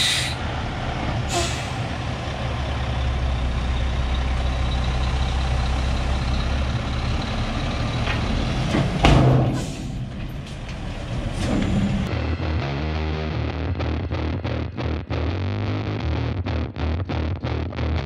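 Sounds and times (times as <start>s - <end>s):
diesel truck engine running: 0.0s - 12.2s.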